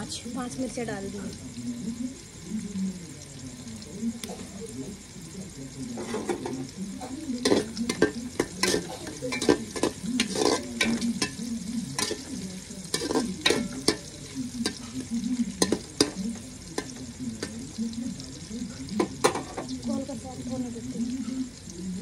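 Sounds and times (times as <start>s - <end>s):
onions sizzling in oil: 0.0s - 22.0s
ladle scraping a metal pot: 6.0s - 6.6s, 7.4s - 15.0s.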